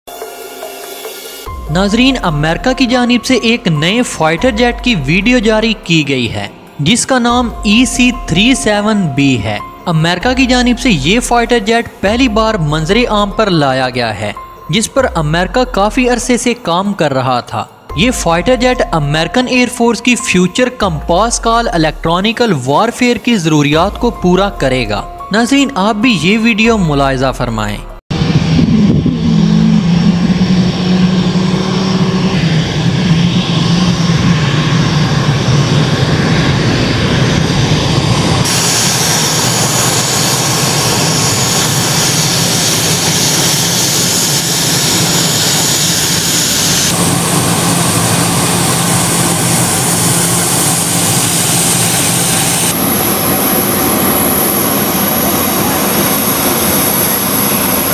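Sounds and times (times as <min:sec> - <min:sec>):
jet engines rushing and whining: 0:00.1 - 0:02.6, 0:28.1 - 0:57.9.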